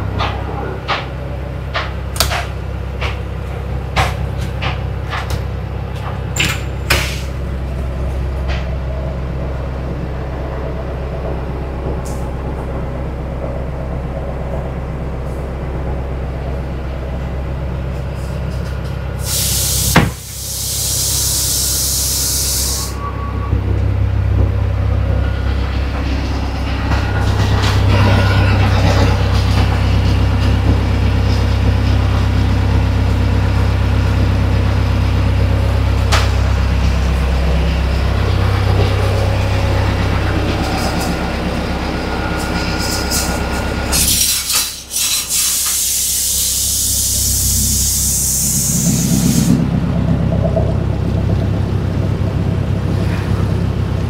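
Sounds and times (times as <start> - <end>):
boat engine droning: 0.0 - 54.0
loud rushing hiss: 19.2 - 23.0, 43.9 - 49.7.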